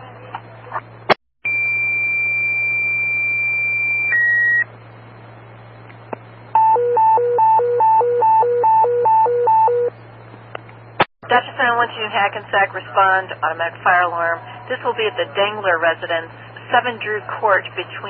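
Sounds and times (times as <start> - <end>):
steady high paging tone: 6.6 - 9.9.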